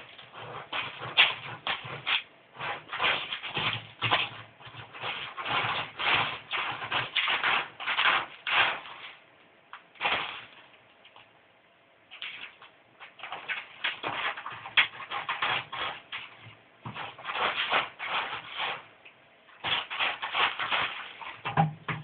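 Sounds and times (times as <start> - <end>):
cat scratching litter: 0.0 - 11.4, 12.1 - 22.0.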